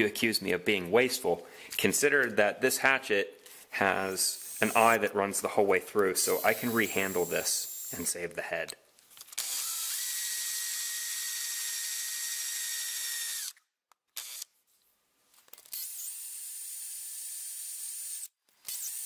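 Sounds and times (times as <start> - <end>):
power drill boring: 4.3 - 5.0, 6.2 - 8.0, 9.3 - 13.6, 14.2 - 14.5, 15.7 - 19.0.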